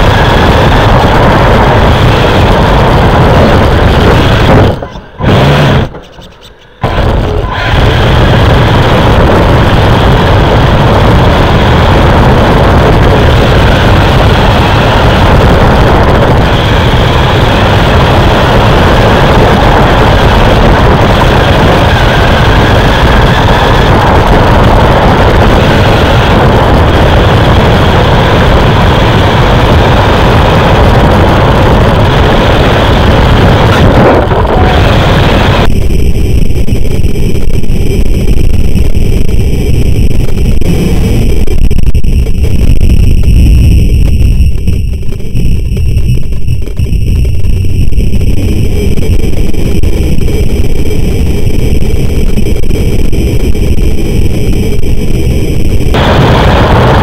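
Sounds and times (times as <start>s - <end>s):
rc truck motor and tyre rumble: 0.0s - 57.0s.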